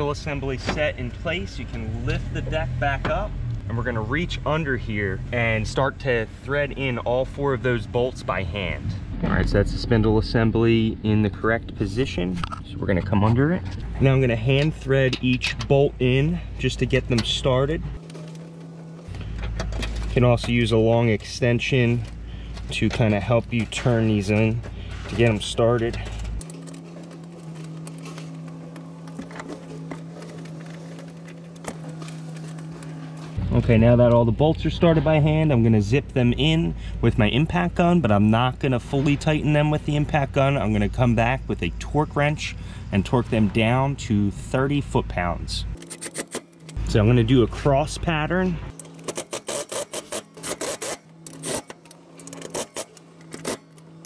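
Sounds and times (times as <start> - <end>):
steady low hum: 0.0 - 54.0.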